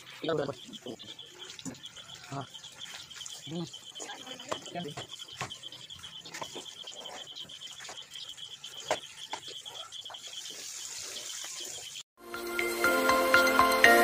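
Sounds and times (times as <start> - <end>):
chicken frying in oil: 0.0 - 12.0
insect trill: 0.0 - 12.0
music: 12.2 - 14.0.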